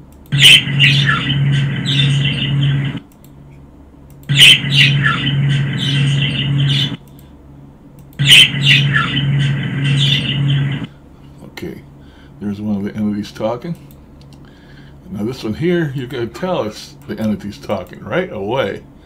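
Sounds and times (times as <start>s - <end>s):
low pulsing hum: 0.0s - 19.0s
budgerigar chirps and squawks: 0.4s - 2.9s, 4.3s - 7.0s, 8.2s - 10.8s.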